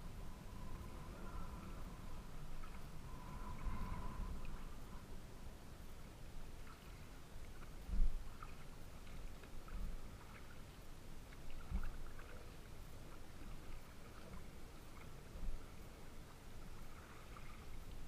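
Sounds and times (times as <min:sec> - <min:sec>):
light water splashes: 0:00.4 - 0:05.1, 0:05.9 - 0:18.0
waves lapping against kayak hull: 0:06.5 - 0:18.0.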